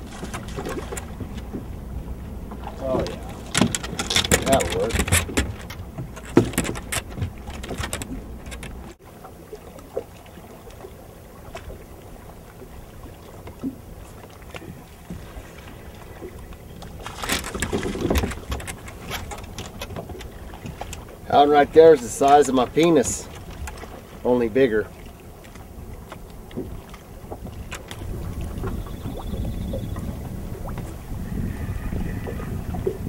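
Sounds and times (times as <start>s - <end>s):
wind rumble: 0.0s - 9.0s, 25.6s - 33.0s
tackle knocks and clicks: 2.5s - 9.0s, 16.5s - 21.0s.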